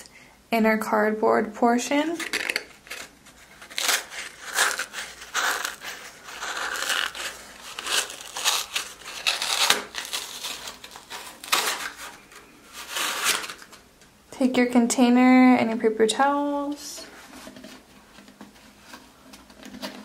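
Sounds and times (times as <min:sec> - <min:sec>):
cardboard crumpling and tearing: 0:02.2 - 0:13.8.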